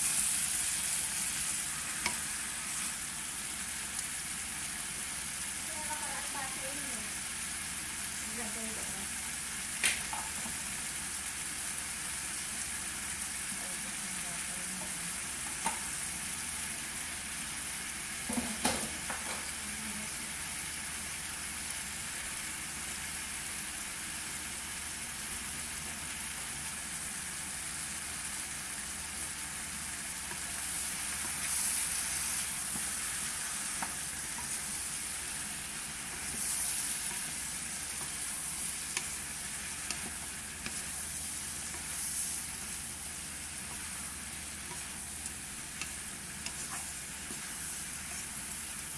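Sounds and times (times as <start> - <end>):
spatula stirring pan: 0.0 - 3.1, 28.5 - 48.9
shrimp sizzling in a pan: 0.0 - 48.9.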